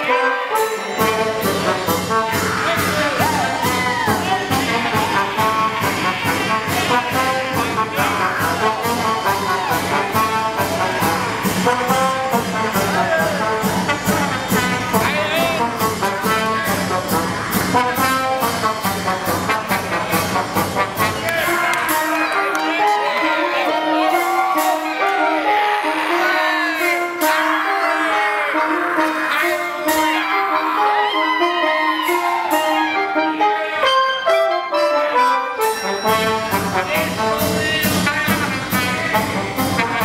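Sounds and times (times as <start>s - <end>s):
brass chamber ensemble music: 0.0s - 40.0s
steady beat: 1.0s - 26.0s.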